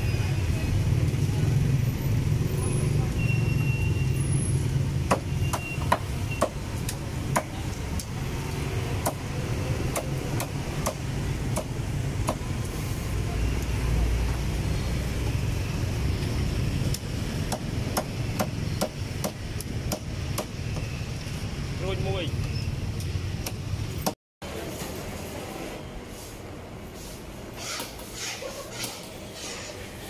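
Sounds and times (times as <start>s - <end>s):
low rumble of street traffic: 0.0s - 30.0s
cleaver chopping on wooden block: 5.0s - 6.6s, 9.0s - 9.3s.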